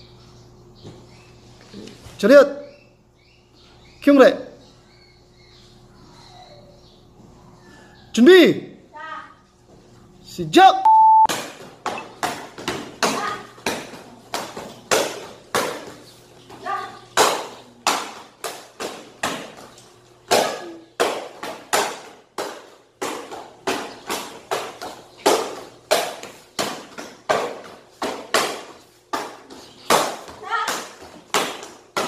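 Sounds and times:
kicks smacking paddle targets: 20.3s - 32.0s.

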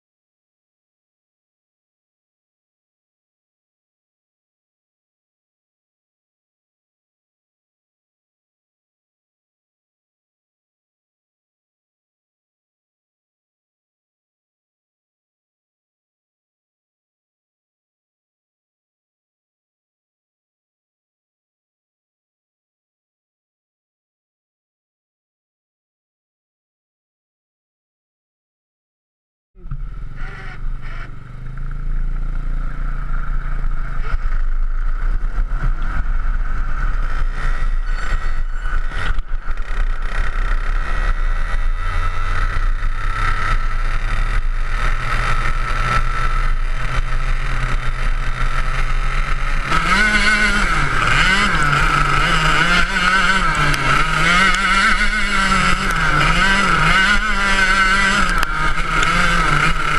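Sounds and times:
go-kart engine revving: 29.6s - 59.9s.

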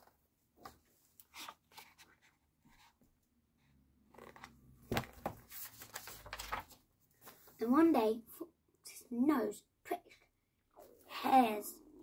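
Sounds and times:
book pages rustling and tapping: 0.0s - 3.1s, 4.1s - 7.5s.

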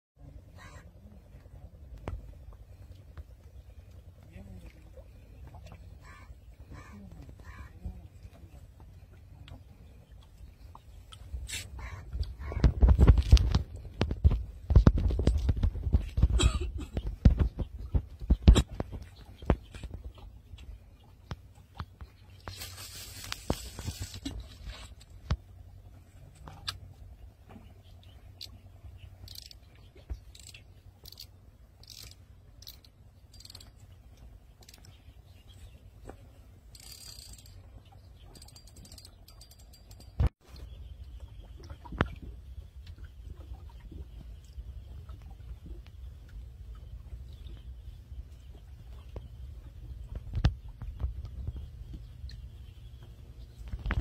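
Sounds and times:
wind on microphone: 11.4s - 20.2s
fishing reel clicks: 29.3s - 29.6s, 30.3s - 33.7s, 36.7s - 37.6s.

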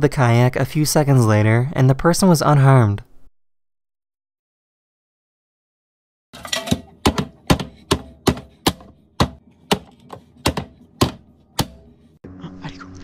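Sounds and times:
vegetable chopper clacking: 6.4s - 12.1s.

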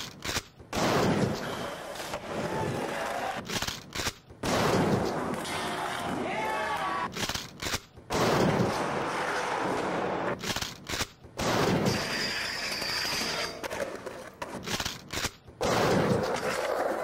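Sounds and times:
skateboard impacts: 8.3s - 10.4s, 15.6s - 17.0s
skateboard wheels rolling on concrete: 12.4s - 17.0s.

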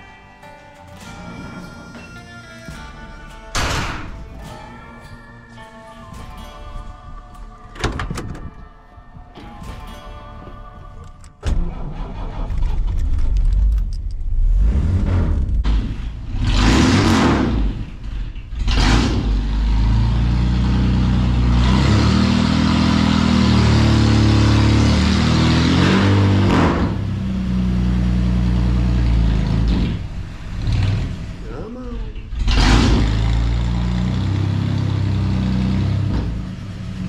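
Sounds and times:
car engine starting: 9.9s - 37.0s
car engine revving: 11.5s - 37.0s
car engine running: 13.0s - 37.0s.

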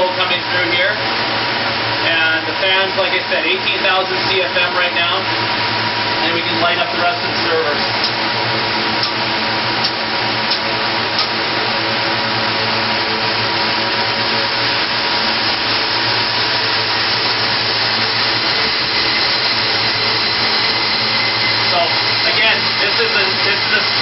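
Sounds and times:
cooling fans rushing: 0.0s - 24.0s
circuit breakers clicking: 9.8s - 11.4s.

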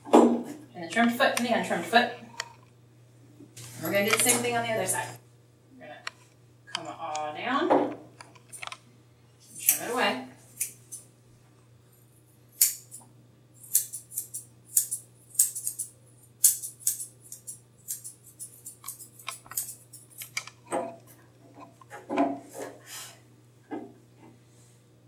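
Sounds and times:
scissors snipping hair: 4.0s - 4.5s, 9.6s - 10.0s, 10.6s - 11.0s, 12.6s - 13.0s, 13.6s - 20.6s.

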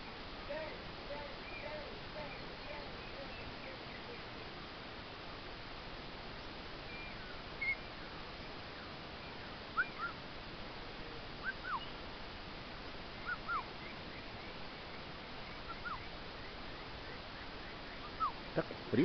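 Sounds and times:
parrot whistled calls: 9.8s - 10.2s, 11.4s - 11.9s, 13.2s - 13.7s, 15.7s - 16.1s.

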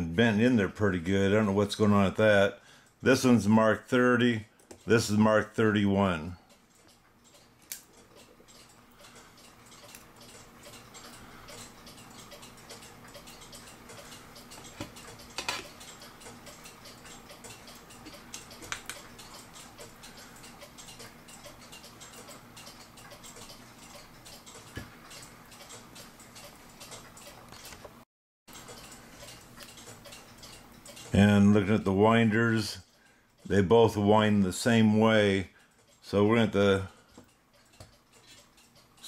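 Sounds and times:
mechanical clock ticking: 0.0s - 27.9s, 28.5s - 39.0s
clock parts clicking: 4.6s - 27.8s, 28.5s - 31.5s, 35.6s - 39.0s.

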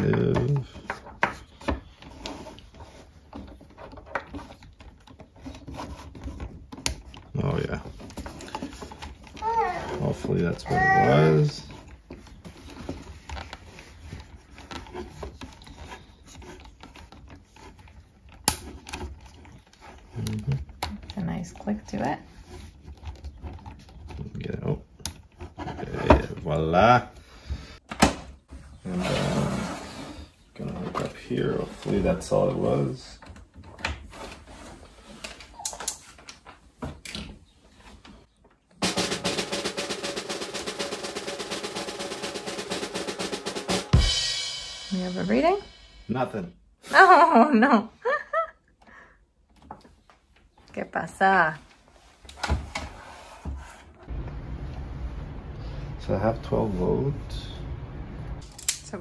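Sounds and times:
snare drum roll suspense music: 38.8s - 46.1s.

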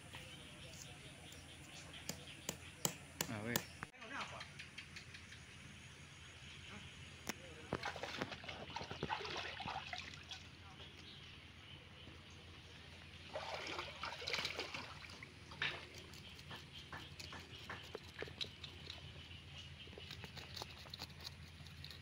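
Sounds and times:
stream water splashing: 7.7s - 10.6s, 13.2s - 15.8s
knife scraping fish scales: 20.0s - 22.0s.

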